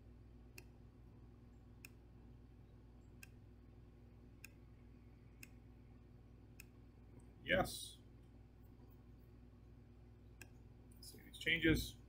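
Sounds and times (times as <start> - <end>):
low steady hum: 0.0 - 12.0
faint computer mouse clicks: 4.4 - 4.6.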